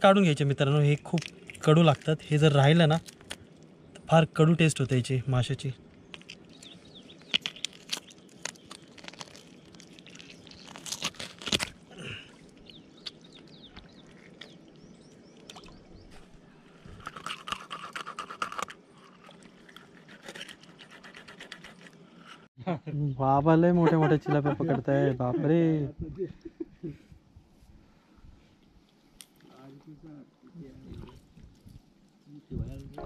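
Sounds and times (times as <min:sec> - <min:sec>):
fish being cleaned crunching: 0:06.0 - 0:14.7, 0:16.9 - 0:22.0.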